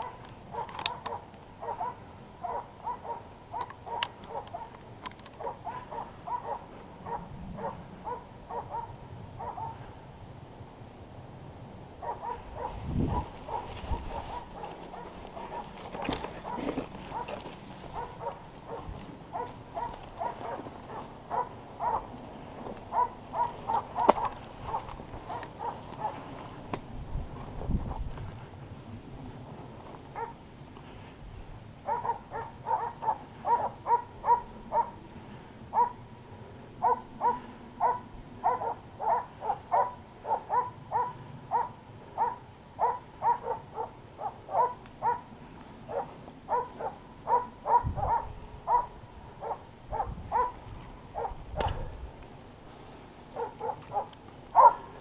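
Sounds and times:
dog barking: 0.0 - 4.7, 5.4 - 9.8, 12.0 - 22.1, 22.9 - 26.3, 30.2 - 30.4, 31.8 - 35.0, 35.7 - 36.0, 36.8 - 45.3, 45.9 - 50.6, 51.2 - 51.9, 53.4 - 54.9.

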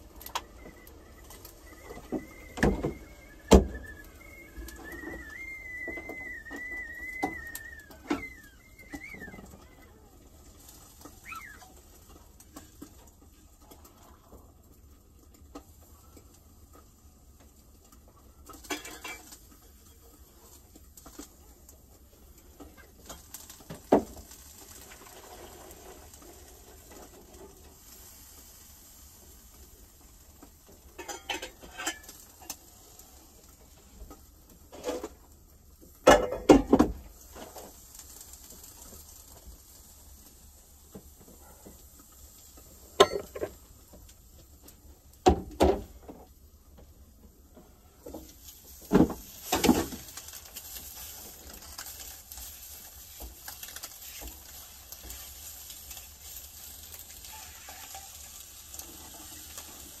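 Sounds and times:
steady hiss: 0.0 - 60.0
dishes and pans clattering: 18.5 - 19.9, 31.0 - 32.6, 36.0 - 37.6, 43.0 - 43.6.

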